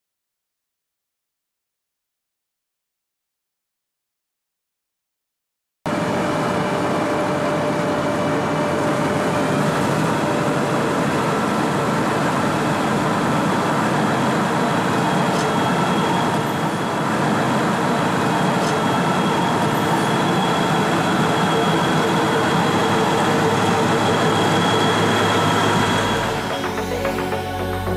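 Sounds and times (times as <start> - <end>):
milling machine running: 5.9 - 27.9.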